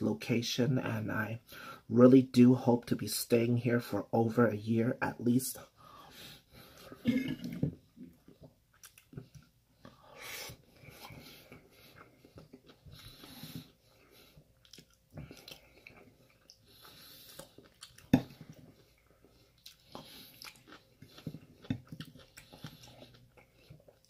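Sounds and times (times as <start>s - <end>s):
person chewing food: 6.4s - 24.0s
soft breaths: 9.3s - 21.6s.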